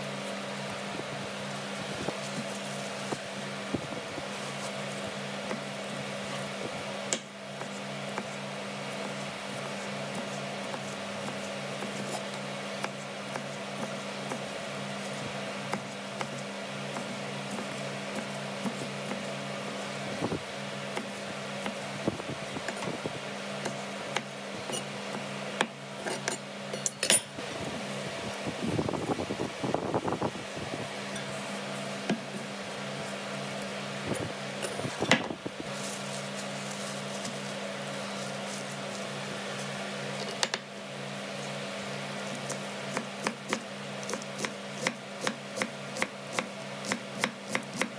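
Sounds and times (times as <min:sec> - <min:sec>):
steady mechanical hum: 0:00.0 - 0:47.9
knife cutting pepper on wood: 0:07.1 - 0:08.4, 0:09.0 - 0:19.8, 0:20.9 - 0:21.8, 0:23.6 - 0:26.4, 0:42.2 - 0:47.9.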